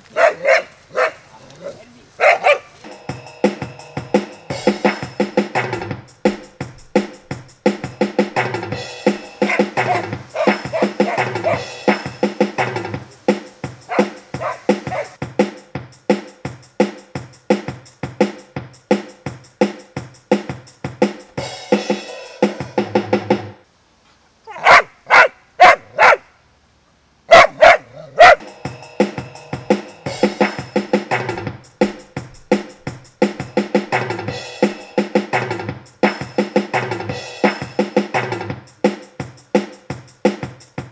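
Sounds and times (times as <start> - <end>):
dog barking: 0.1 - 2.8, 9.4 - 11.7, 13.9 - 15.2, 24.5 - 26.3, 27.3 - 28.4
background music with drum beat: 2.8 - 23.6, 28.2 - 40.9.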